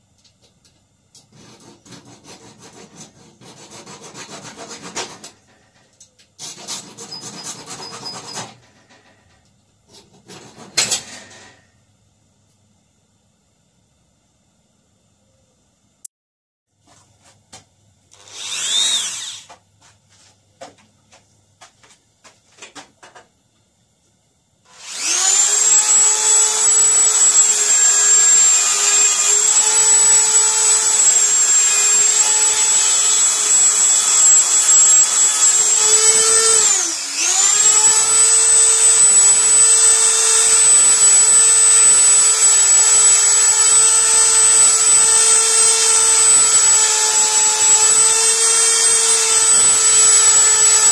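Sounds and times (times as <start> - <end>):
rotary tool whining while grinding: 1.3 - 9.2, 18.1 - 19.6, 24.7 - 50.9.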